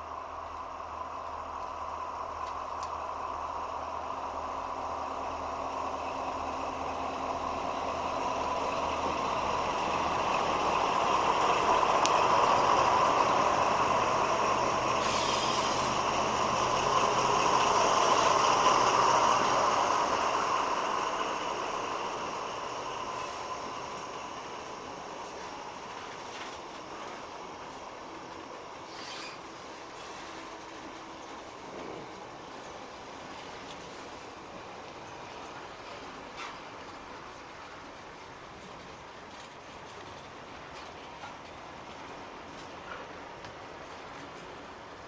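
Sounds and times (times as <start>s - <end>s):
diesel locomotive passing: 0.0s - 45.0s
wagons rolling over rails: 4.3s - 45.0s
brief high hiss: 15.0s - 16.0s, 28.9s - 29.4s.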